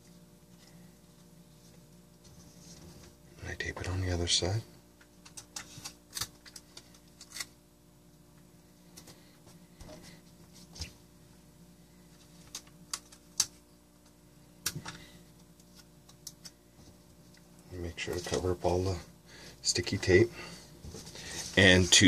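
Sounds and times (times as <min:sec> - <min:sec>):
faint steady hum: 0:00.0 - 0:22.0
tape and plastic crinkling: 0:05.2 - 0:07.6.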